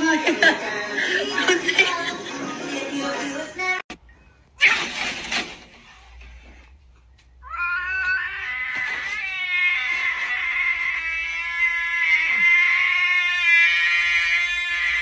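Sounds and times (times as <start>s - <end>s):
cat yowling: 7.4s - 15.0s.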